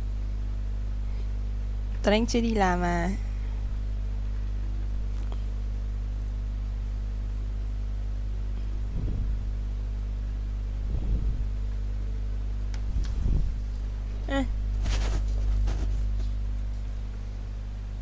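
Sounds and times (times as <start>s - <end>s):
low electrical hum: 0.0s - 18.0s
dull low bumps: 8.8s - 9.5s, 10.8s - 11.7s, 12.7s - 16.3s.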